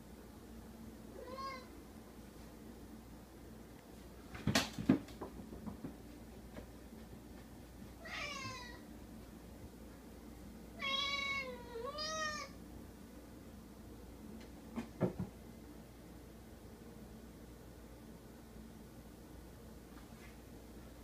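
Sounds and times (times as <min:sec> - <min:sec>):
cat meowing: 0:01.2 - 0:01.7, 0:08.0 - 0:08.8, 0:10.8 - 0:12.6.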